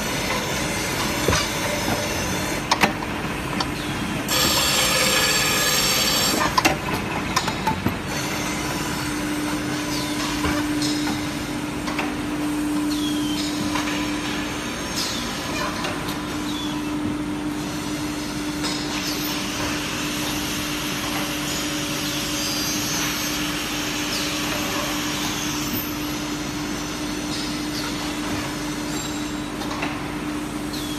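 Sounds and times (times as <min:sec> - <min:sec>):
sharp clicks and knocks: 0:02.7 - 0:03.7
grinding machine humming: 0:04.1 - 0:11.8
loud high squeal: 0:04.3 - 0:06.5.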